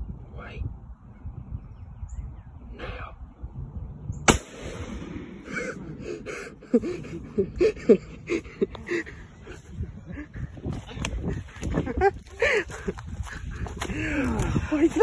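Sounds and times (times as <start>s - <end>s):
loud sharp gunshot: 4.3s - 5.5s.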